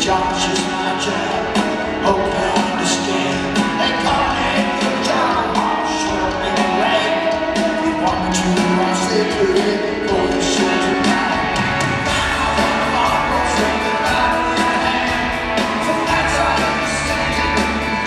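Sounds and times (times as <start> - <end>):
drums: 0.0 - 18.0
electric guitars: 0.0 - 18.0
man singing lead vocal: 0.0 - 18.0.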